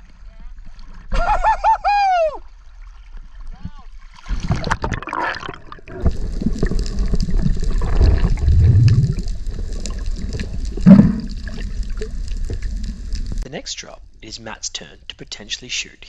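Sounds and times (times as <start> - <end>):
underwater water rushing and bubbling: 2.5 - 13.4
underwater gurgle: 2.8 - 13.4.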